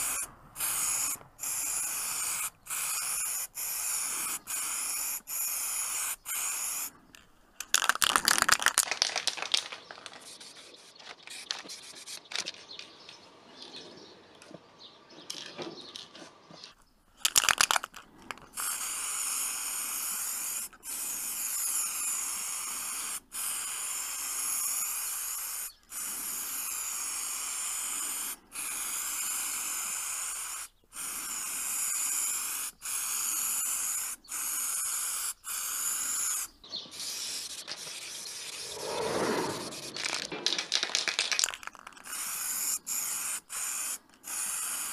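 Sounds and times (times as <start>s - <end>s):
spray can ball rattling: 0.0s - 6.9s, 7.6s - 10.4s, 17.2s - 26.0s, 26.9s - 36.5s, 39.6s - 44.9s
spray paint hissing: 0.0s - 7.0s, 17.2s - 44.9s.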